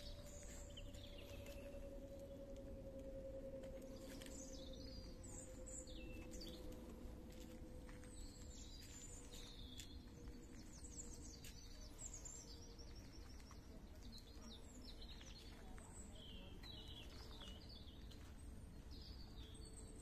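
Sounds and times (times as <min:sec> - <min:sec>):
low hum: 0:00.0 - 0:13.7
small birds chirping: 0:00.0 - 0:20.0.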